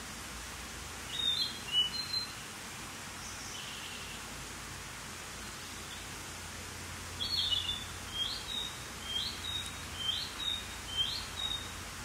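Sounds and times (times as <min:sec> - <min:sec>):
steady hiss: 0:00.0 - 0:12.0
bird singing: 0:01.1 - 0:02.4, 0:07.2 - 0:11.8.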